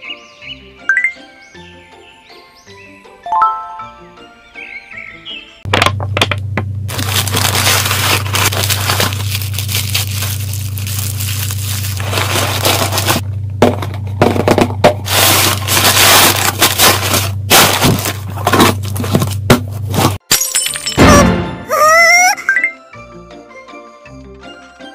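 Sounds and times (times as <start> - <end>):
low electrical hum: 5.7 - 20.2
packaging crinkling and rustling: 6.9 - 13.2, 14.3 - 20.2.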